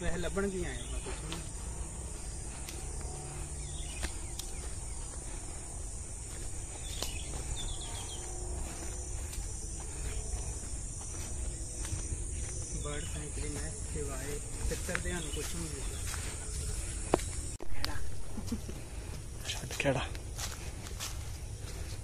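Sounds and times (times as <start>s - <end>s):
faint bird chirps: 0.0s - 18.7s
insects droning: 0.0s - 22.0s.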